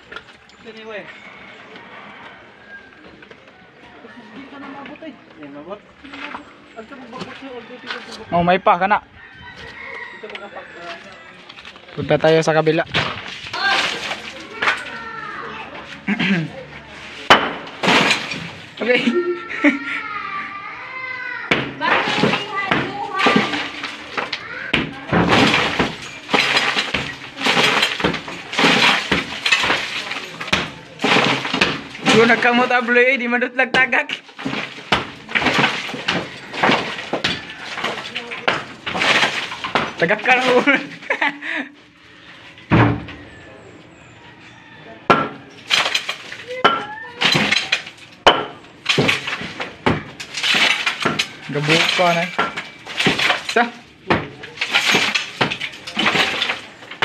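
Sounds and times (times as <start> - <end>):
masonry chunks crumbling and falling: 5.7 - 8.4, 9.2 - 19.7, 21.5 - 43.4, 45.1 - 57.0
rubble clattering down: 11.5 - 15.0, 17.2 - 19.0, 21.6 - 41.2, 45.6 - 57.0
sledgehammer smashing concrete block: 12.7 - 15.0, 17.2 - 19.0, 21.5 - 41.0, 45.1 - 57.0.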